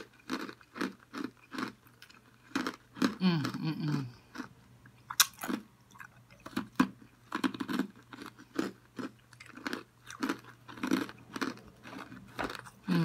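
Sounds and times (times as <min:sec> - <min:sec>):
person chewing and smacking food: 0:00.0 - 0:13.0.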